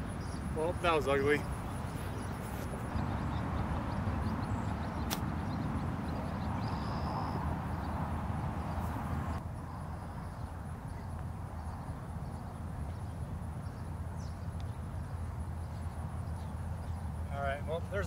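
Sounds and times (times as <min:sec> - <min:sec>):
wind buffeting microphone: 0:00.0 - 0:10.7.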